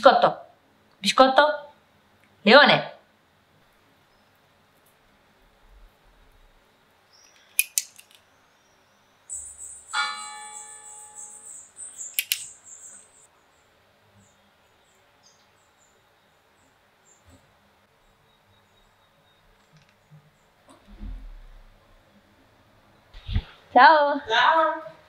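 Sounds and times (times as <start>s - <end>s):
sharp clicks: 7.3s - 8.2s, 12.0s - 13.1s
faint high chirps: 8.3s - 17.4s
steady high trill: 9.3s - 13.3s
bell ringing: 9.9s - 11.8s.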